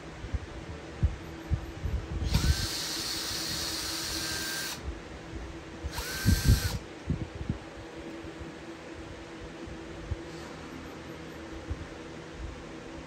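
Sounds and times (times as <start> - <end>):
electric drill motor whine: 2.2 - 4.8, 5.9 - 6.8.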